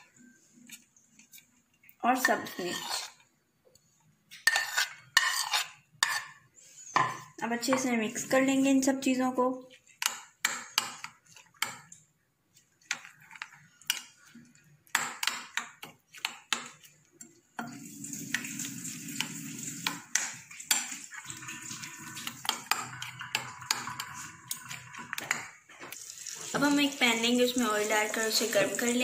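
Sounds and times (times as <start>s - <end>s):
spoon beating eggs in glass bowl: 4.3s - 6.4s, 9.7s - 17.8s, 19.2s - 26.0s.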